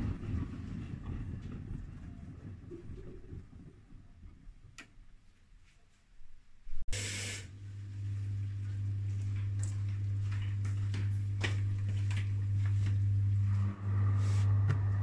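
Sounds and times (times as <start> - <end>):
washing machine humming: 6.8 - 15.0.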